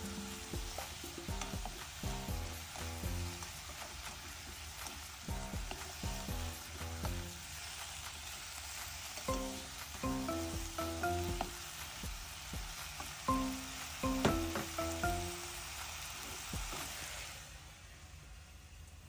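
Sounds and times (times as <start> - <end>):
food sizzling in oil: 0.0 - 19.0
spatula stirring in a pan: 0.1 - 14.8
melodic background music: 9.3 - 11.8, 13.3 - 15.6.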